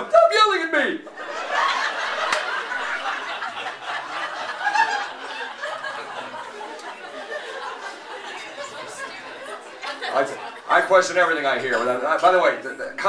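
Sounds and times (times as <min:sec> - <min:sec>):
audience laughing: 0:01.1 - 0:10.7.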